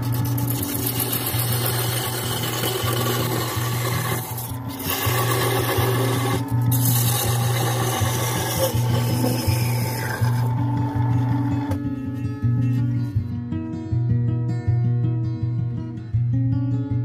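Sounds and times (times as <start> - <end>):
parting tool scraping wood on lathe: 0.0 - 11.8
background music: 0.0 - 17.0.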